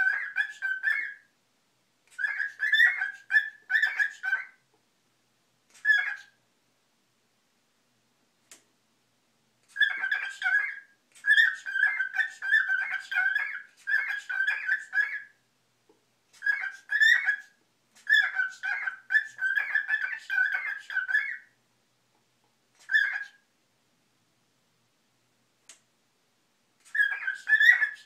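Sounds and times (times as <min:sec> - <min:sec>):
cockatiel warbling and chattering: 0:00.0 - 0:01.3, 0:02.0 - 0:04.6, 0:05.7 - 0:06.4, 0:09.6 - 0:15.4, 0:16.3 - 0:21.6, 0:22.7 - 0:23.5, 0:26.8 - 0:28.0.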